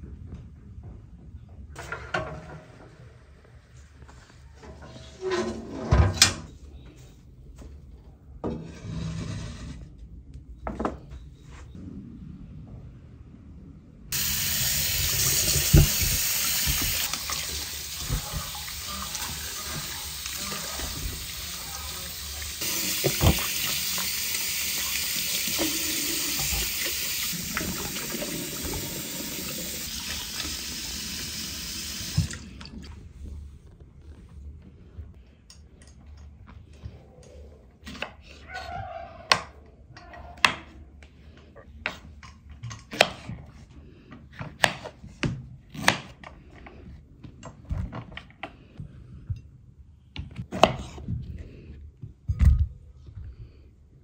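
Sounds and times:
tap water running into a bowl: 14.2 - 32.5.

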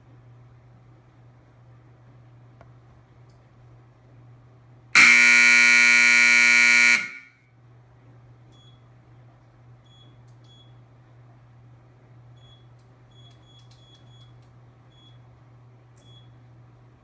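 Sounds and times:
shot clock horn blast: 5.0 - 7.3.

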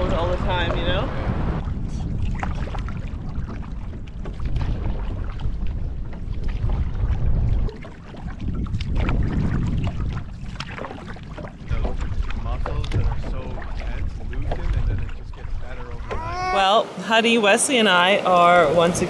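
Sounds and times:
wind buffeting microphone: 0.0 - 16.7.

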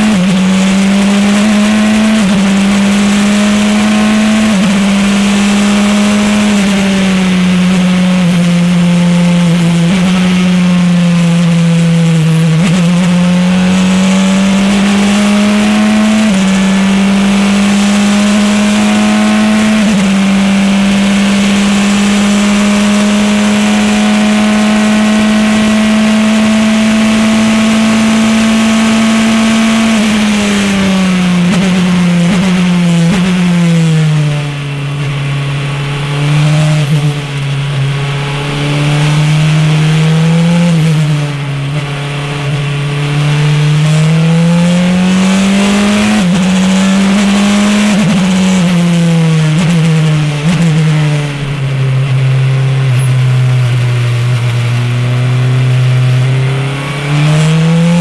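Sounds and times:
racing car engine revving: 0.0 - 58.0.

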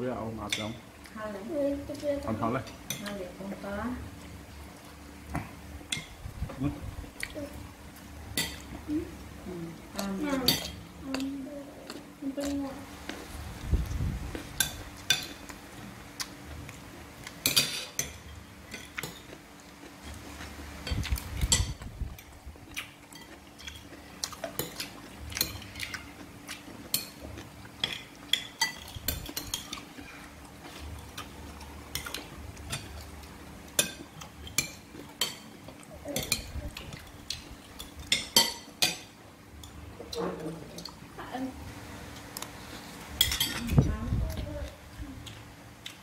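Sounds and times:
spoons clinking on ceramic plates: 37.8 - 39.8, 43.2 - 43.6.

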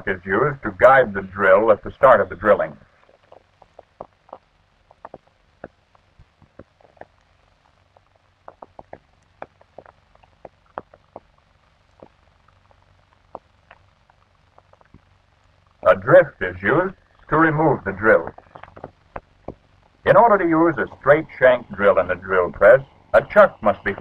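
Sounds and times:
film soundtrack crackle: 0.0 - 24.0
low steady hum: 0.0 - 24.0.

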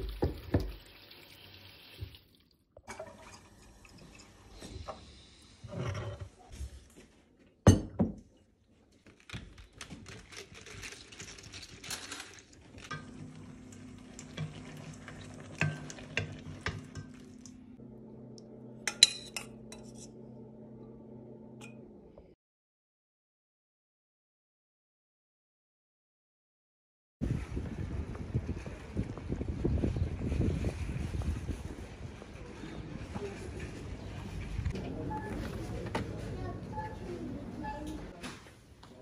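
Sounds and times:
dishes and cutlery clinking: 15.5 - 17.4, 18.9 - 20.2.

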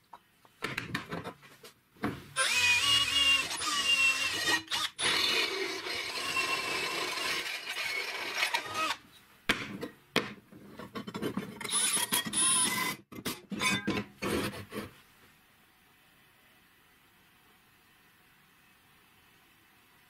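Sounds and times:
drill boring through metal: 2.4 - 9.0.

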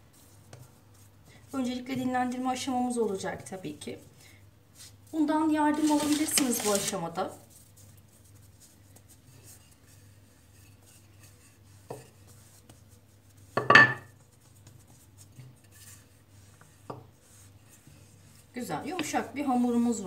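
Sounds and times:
rolling pin rolling dough: 0.0 - 4.1, 4.8 - 20.0.

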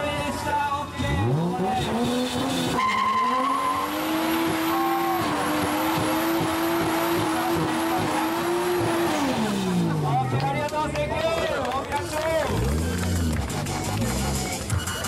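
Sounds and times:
tyres squealing on pavement: 1.0 - 9.2
car engine revving: 1.0 - 10.6, 12.3 - 15.0.

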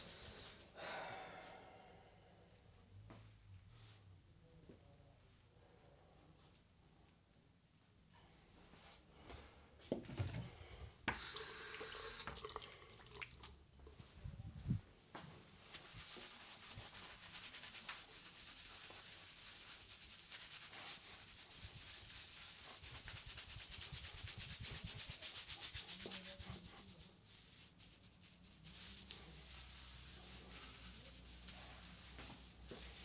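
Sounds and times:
fingers scrubbing soapy hair: 15.8 - 31.6.

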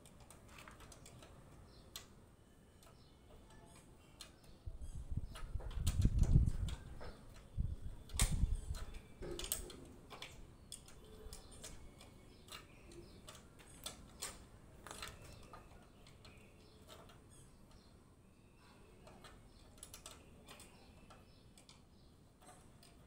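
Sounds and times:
steel formwork clicks and taps: 5.3 - 17.9.

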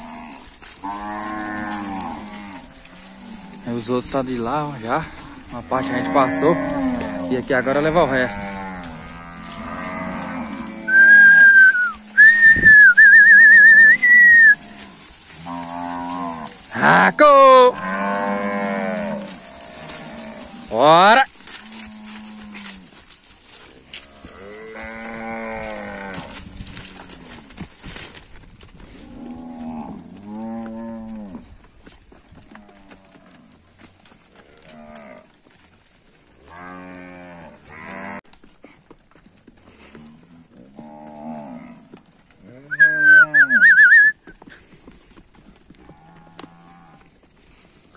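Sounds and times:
cattle lowing faintly: 0.0 - 12.6, 17.6 - 47.9
person whistling loudly: 10.9 - 14.6, 42.7 - 44.3.

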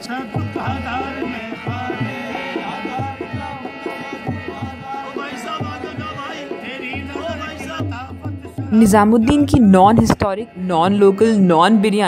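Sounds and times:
man singing ornamented melody: 0.0 - 9.5
harmonium drone: 0.0 - 12.0
hand drum beat: 0.3 - 11.5.

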